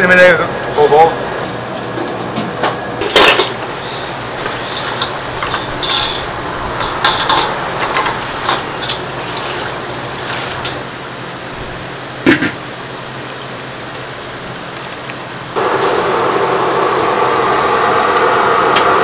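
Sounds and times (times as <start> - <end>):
metal skewers clanking in a bowl: 3.0 - 10.8
water pouring and splashing: 3.2 - 11.9.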